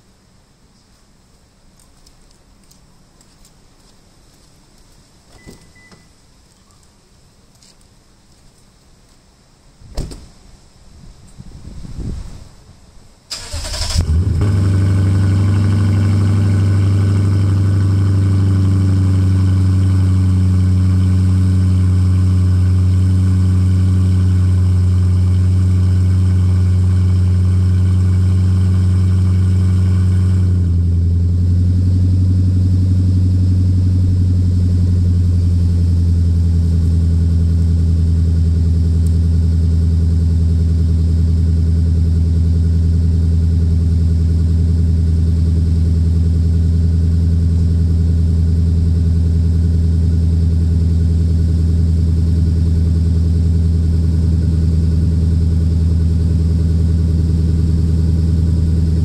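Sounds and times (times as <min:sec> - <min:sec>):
car engine idling: 0:13.3 - 0:59.0
car engine starting: 0:13.3 - 0:59.0.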